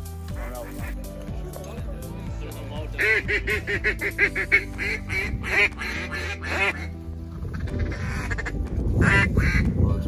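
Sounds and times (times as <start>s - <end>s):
duck call quacks: 3.0s - 6.9s.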